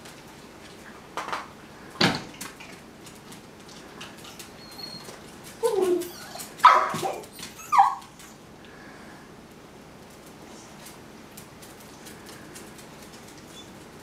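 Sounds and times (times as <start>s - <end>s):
dog whining and yelping: 4.2s - 8.4s.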